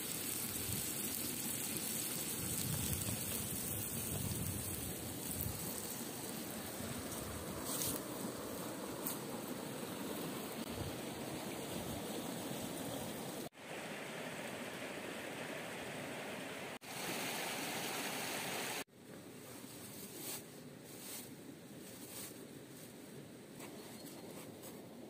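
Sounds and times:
fast stream rushing: 0:10.0 - 0:18.9.

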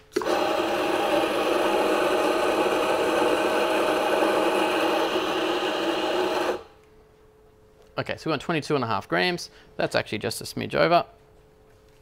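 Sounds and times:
coffee grinder motor running: 0:00.0 - 0:06.8.

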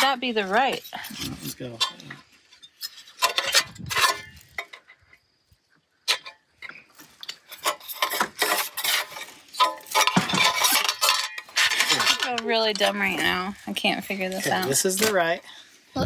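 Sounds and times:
plastic gutter pieces scraping: 0:07.1 - 0:13.2.

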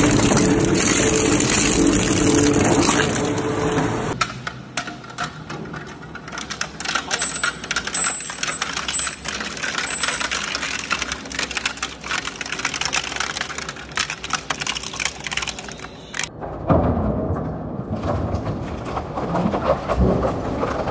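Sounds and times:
shredder crushing wire spools: 0:00.0 - 0:04.2, 0:06.3 - 0:16.3.

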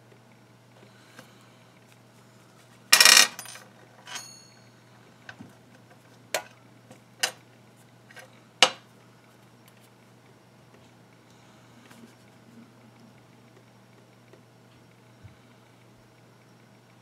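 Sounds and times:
short metallic ring: 0:04.1 - 0:04.7.

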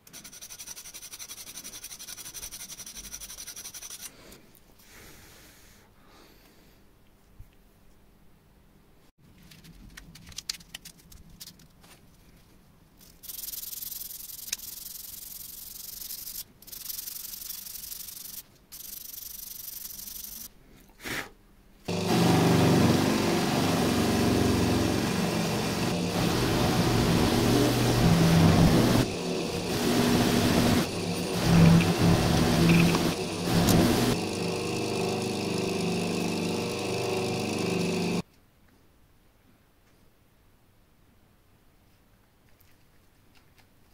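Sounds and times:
sandpaper rubbing metal: 0:00.0 - 0:04.1, 0:13.0 - 0:20.5, 0:25.6 - 0:34.4
buffing wheel motor humming: 0:21.9 - 0:38.2.

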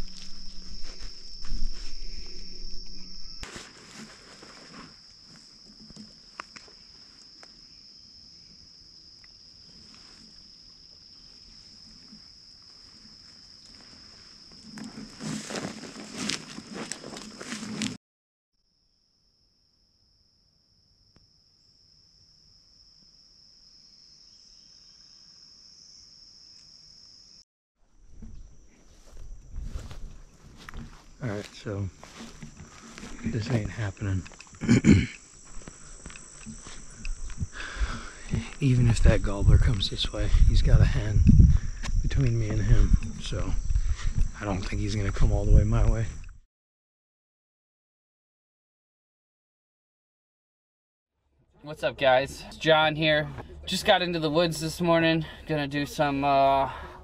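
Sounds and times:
footsteps crunching through dry grass: 0:00.0 - 0:07.4, 0:11.3 - 0:18.0, 0:28.0 - 0:46.2
rustling and handling noise: 0:00.0 - 0:07.5, 0:12.1 - 0:18.0, 0:28.2 - 0:34.6
high-pitched insect trill: 0:00.0 - 0:17.8, 0:18.7 - 0:27.4, 0:28.0 - 0:46.4.

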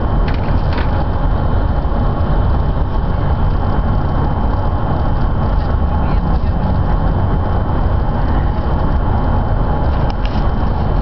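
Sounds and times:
low rumble of tyres and engine: 0:00.0 - 0:11.0.

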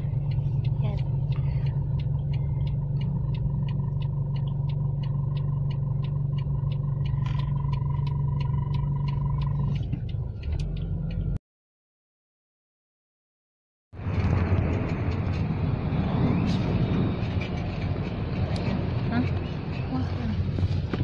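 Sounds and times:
car engine hum: 0:00.0 - 0:11.4, 0:14.0 - 0:21.0
turn signal ticking: 0:00.0 - 0:11.4.

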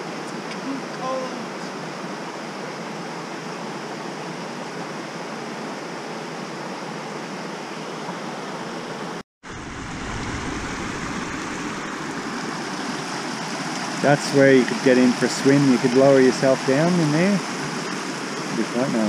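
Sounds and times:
water rushing over rocks: 0:09.4 - 0:19.0.

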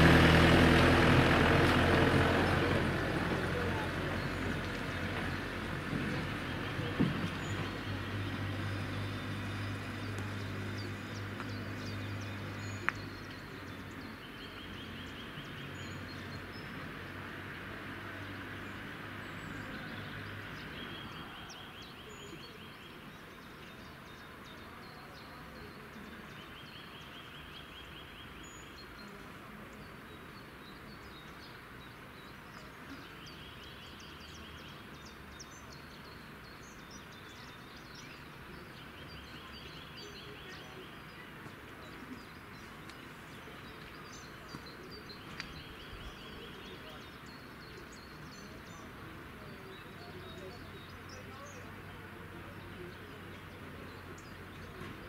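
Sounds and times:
low engine drone: 0:00.0 - 0:12.8
faint outdoor background noise: 0:00.0 - 0:55.0.

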